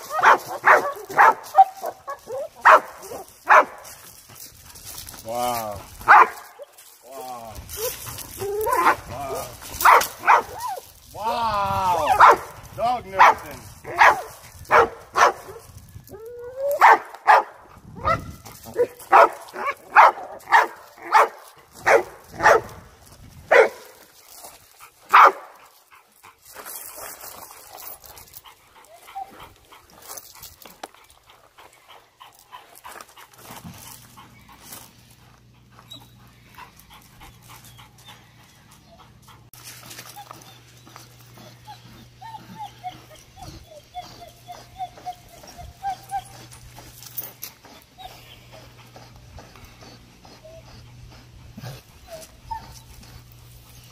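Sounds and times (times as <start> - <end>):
dog barking: 0.1 - 3.8, 6.1 - 6.4, 9.8 - 10.6, 12.1 - 12.5, 13.2 - 15.6, 16.8 - 18.2, 18.8 - 22.7, 23.5 - 23.8, 25.1 - 25.5
dog whimpering: 7.7 - 9.4, 40.0 - 46.9, 49.5 - 53.0.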